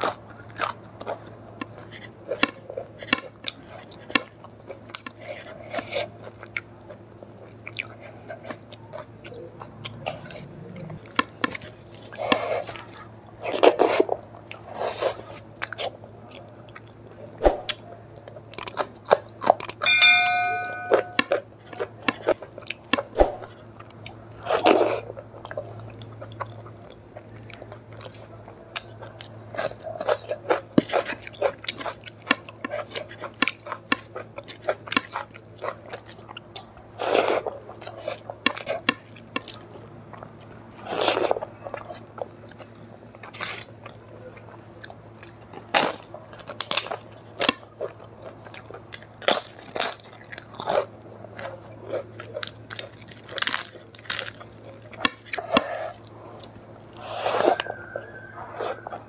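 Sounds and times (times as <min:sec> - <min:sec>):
chewing: 0:00.0 - 0:19.8, 0:21.1 - 0:59.0
brief metallic ring: 0:19.8 - 0:21.3.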